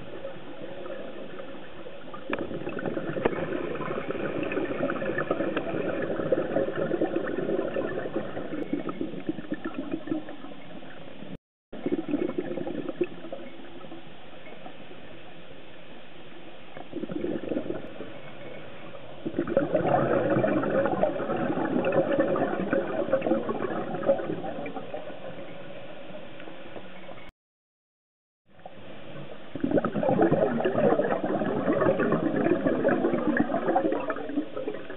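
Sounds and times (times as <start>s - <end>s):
underwater regulator bubbles: 0.0s - 14.0s, 16.8s - 18.6s, 19.2s - 25.5s, 29.5s - 34.9s.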